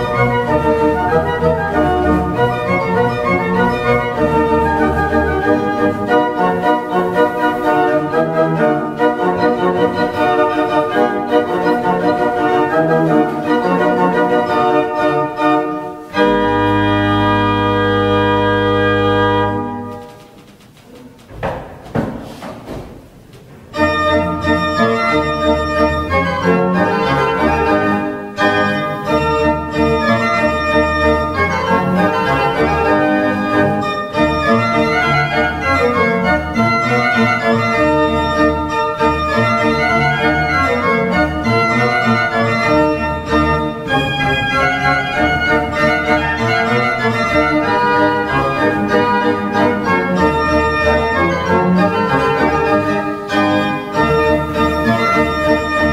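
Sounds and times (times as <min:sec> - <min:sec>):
pipe organ playing dance music: 0:00.0 - 0:55.9.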